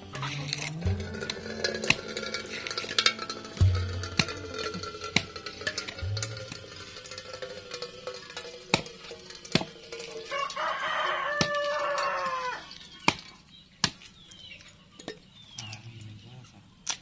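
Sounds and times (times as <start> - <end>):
sharp knocks: 0.9 - 7.2
rooster crowing: 10.2 - 12.8.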